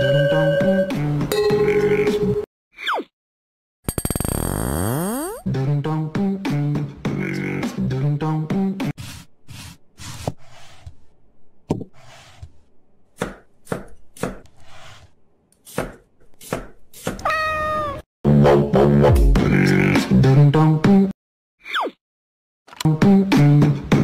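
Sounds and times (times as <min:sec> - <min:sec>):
knife chopping onion on wooden board: 0:11.7 - 0:17.2
cat meowing: 0:17.2 - 0:18.0.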